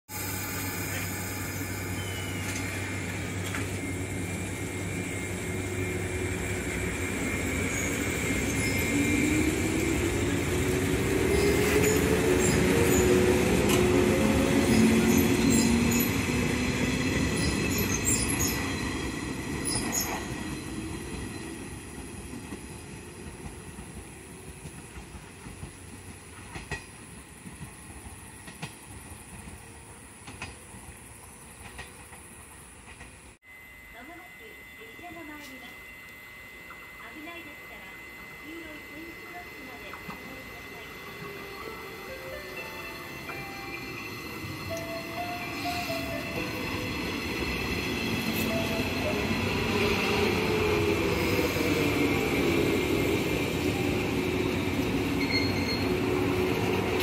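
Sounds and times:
electric train motor whine: 0.1s - 25.6s, 33.4s - 57.0s
train wheel clicks: 23.2s - 29.6s, 30.2s - 30.6s, 31.6s - 33.2s.

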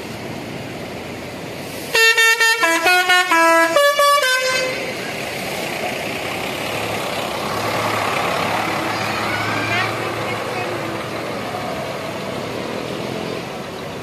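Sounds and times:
diesel engine running: 0.0s - 14.0s
multi-tone bus air horn: 1.9s - 5.0s.

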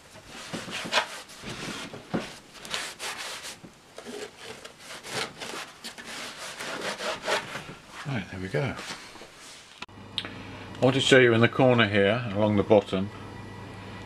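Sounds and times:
cloth wiping textured covering: 0.3s - 3.6s.

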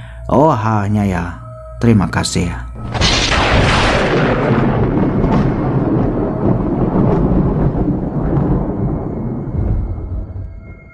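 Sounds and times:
thunder rumbling: 2.7s - 10.9s.

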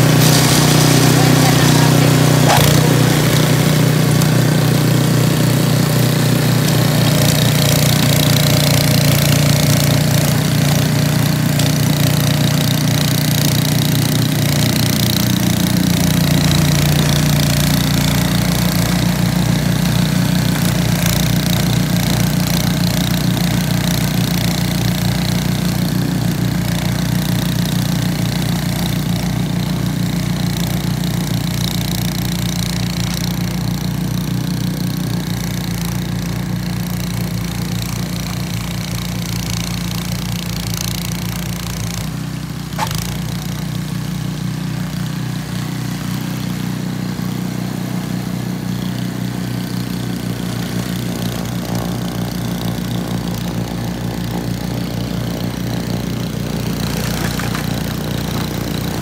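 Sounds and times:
snow blower engine running: 0.0s - 59.0s.

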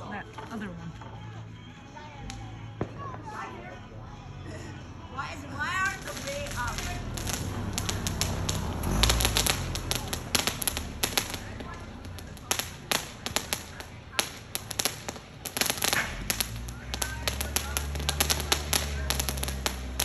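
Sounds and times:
firework crackling and popping: 5.5s - 20.0s.

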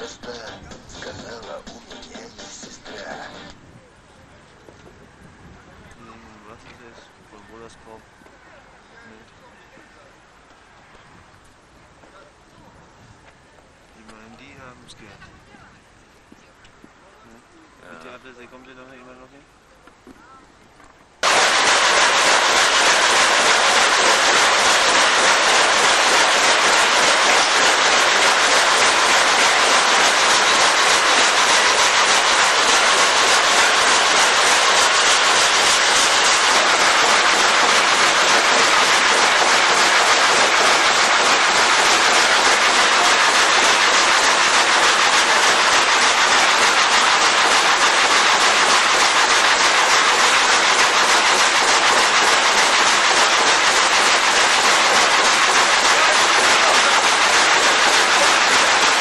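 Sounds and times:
log frame saw clattering: 21.6s - 59.0s.

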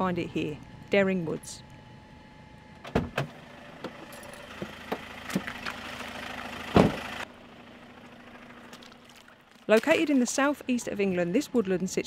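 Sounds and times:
van engine idling: 3.3s - 9.6s
van door slamming: 6.7s - 7.2s.

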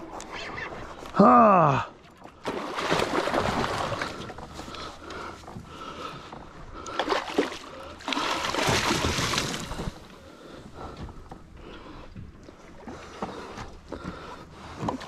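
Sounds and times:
water sloshing: 2.0s - 15.0s
fish thrashing and splashing: 2.2s - 4.9s, 6.9s - 10.1s.

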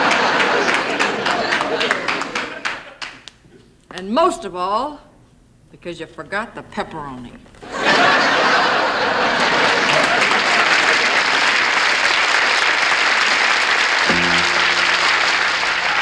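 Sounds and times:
audience applauding: 0.0s - 3.2s, 9.4s - 16.0s
piano held chord: 14.1s - 16.0s.

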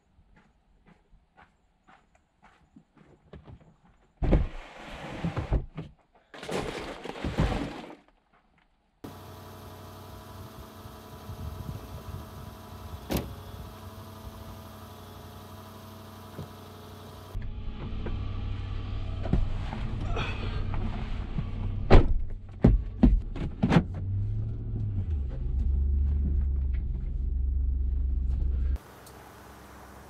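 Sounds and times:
plastic tote scraping and sliding: 4.6s - 5.7s, 6.4s - 8.1s
outdoor background hiss: 9.0s - 17.4s, 28.8s - 30.0s.

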